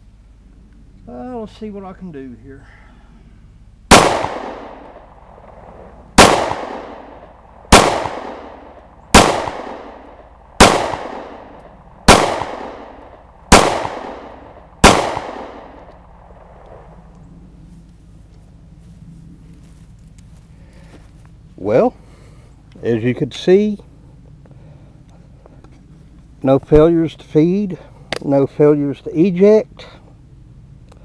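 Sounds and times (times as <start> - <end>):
pistol shots with echo: 3.9 - 16.9.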